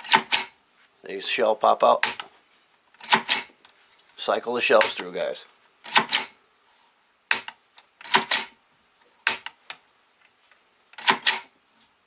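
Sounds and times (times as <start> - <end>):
rifle bolt metallic clacks: 2.0 - 2.3.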